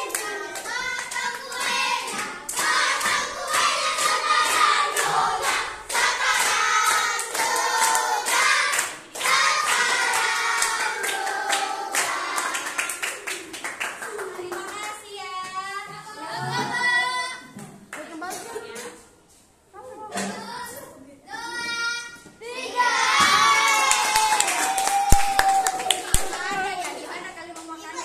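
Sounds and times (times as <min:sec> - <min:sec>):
children singing in unison: 0:00.0 - 0:13.0
hand clapping: 0:23.8 - 0:27.0.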